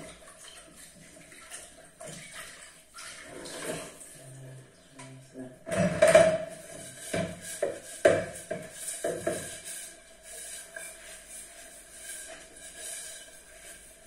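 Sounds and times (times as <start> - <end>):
sharp knocks and clatters: 5.6 - 9.7.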